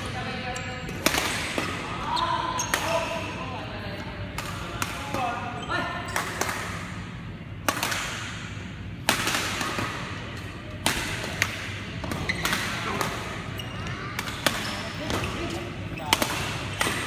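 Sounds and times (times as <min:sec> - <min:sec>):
rackets hitting shuttlecock: 0:07.6 - 0:13.5, 0:14.1 - 0:17.0.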